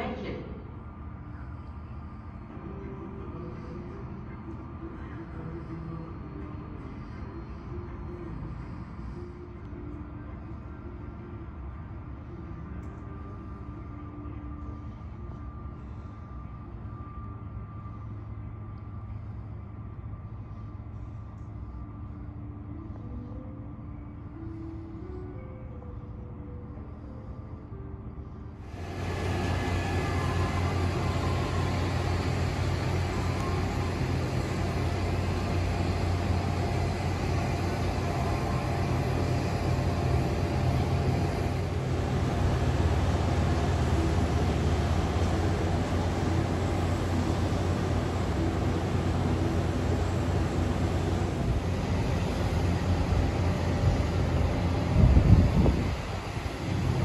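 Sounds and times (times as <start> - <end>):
machinery hum with high whine: 0.0 - 57.0
hiss: 28.6 - 57.0.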